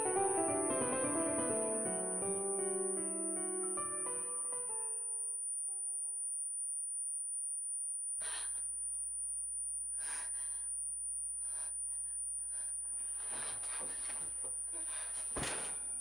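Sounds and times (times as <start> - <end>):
piano tune: 0.0 - 5.3
woman breathing audibly: 9.9 - 10.8, 11.4 - 16.0.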